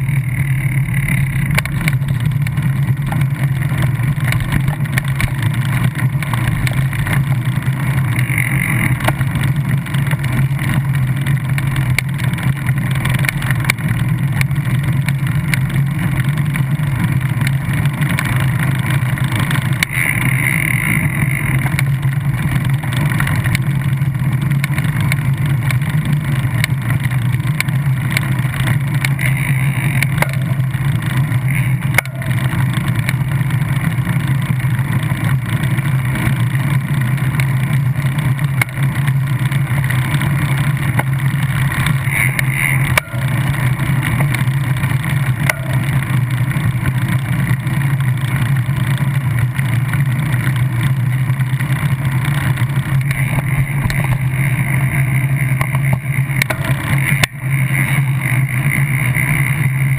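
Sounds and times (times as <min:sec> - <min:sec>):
bicycle riding rumble: 0:00.0 - 0:59.9.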